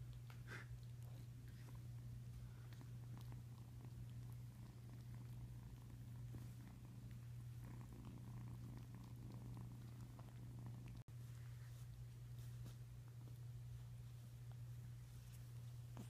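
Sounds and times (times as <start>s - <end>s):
kitten purring: 0.0s - 16.0s.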